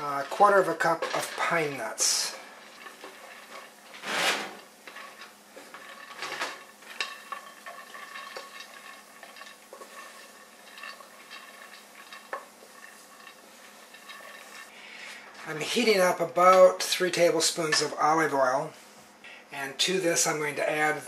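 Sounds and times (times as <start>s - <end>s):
pine nuts rattling in a skillet: 0.0s - 14.7s.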